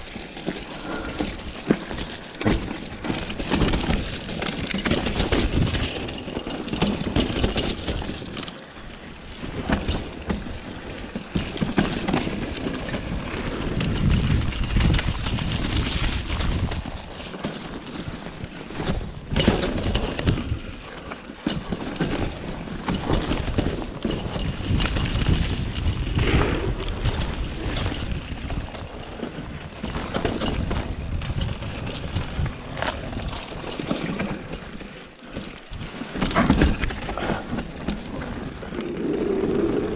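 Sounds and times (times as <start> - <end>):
bike rattling and knocking: 0.0 - 39.9
bike tyres on dirt: 0.0 - 39.9
wind buffeting microphone: 9.3 - 17.1, 22.0 - 34.6, 35.7 - 39.9.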